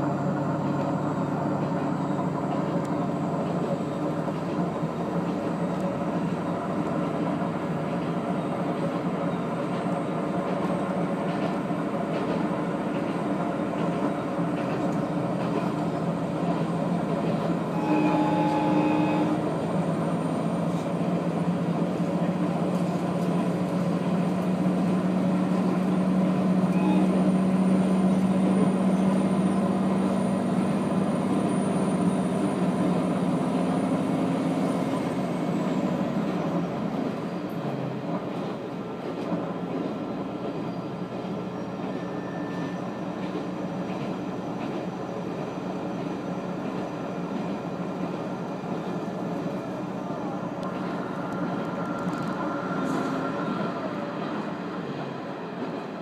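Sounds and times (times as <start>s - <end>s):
railcar engine hum: 0.0s - 56.0s
wheels rumbling on track: 0.0s - 56.0s
faint brief squeal: 26.7s - 29.3s, 40.6s - 43.0s.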